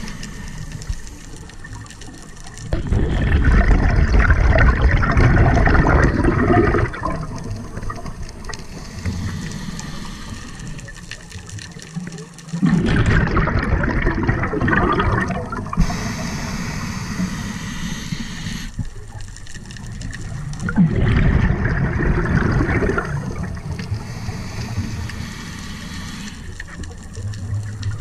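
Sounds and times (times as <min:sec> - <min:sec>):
regulator inhalation hiss: 0:00.0 - 0:01.4, 0:08.5 - 0:11.2, 0:15.7 - 0:18.9, 0:23.6 - 0:26.8
exhaled bubbles underwater: 0:00.0 - 0:28.0.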